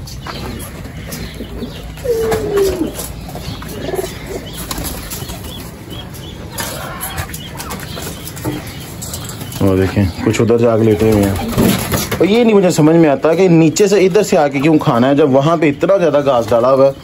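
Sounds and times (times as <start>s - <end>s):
bird calls: 0.0s - 17.0s
wings flapping: 2.0s - 5.8s.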